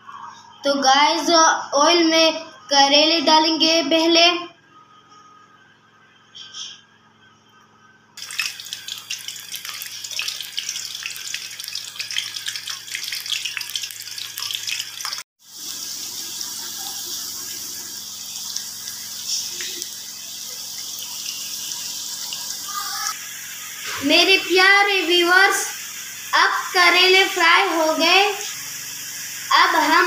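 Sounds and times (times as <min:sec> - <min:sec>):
vegetables sizzling in hot oil: 0:08.2 - 0:30.0.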